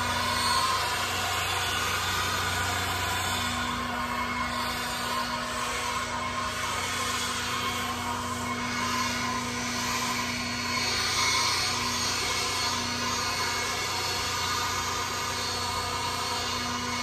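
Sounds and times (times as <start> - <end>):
string trimmer running: 0.0 - 17.0.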